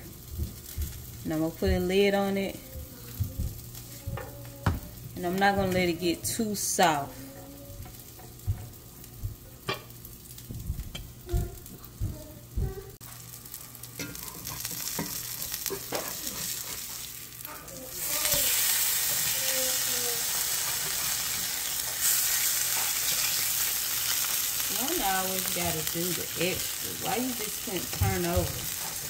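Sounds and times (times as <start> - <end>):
fish sizzling in oil: 13.0 - 29.0.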